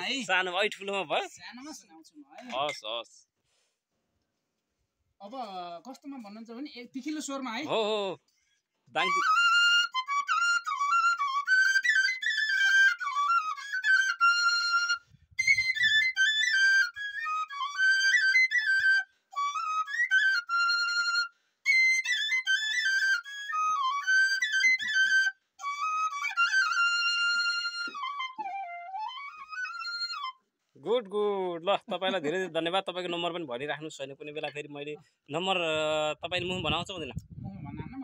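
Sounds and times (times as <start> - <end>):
bamboo flute melody: 9.0 - 31.0.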